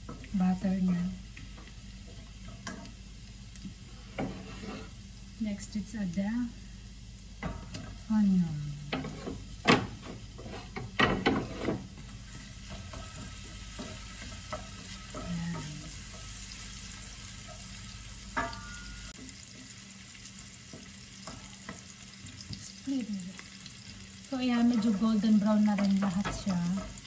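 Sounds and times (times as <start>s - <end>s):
onion sizzling in pan: 0.0s - 27.0s
wooden spoon knocking on pan: 8.9s - 10.2s, 10.8s - 12.1s.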